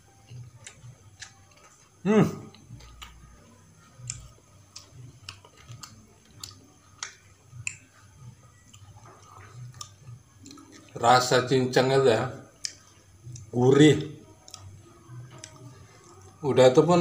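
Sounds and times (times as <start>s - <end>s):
close chewing with mouth smacks: 0.1s - 11.0s, 12.6s - 13.5s, 14.4s - 16.4s.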